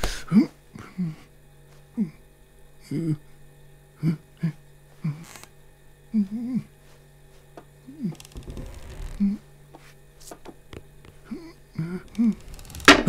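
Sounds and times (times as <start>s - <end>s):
low steady hum: 0.0s - 13.0s
scraping rustle: 6.8s - 10.4s.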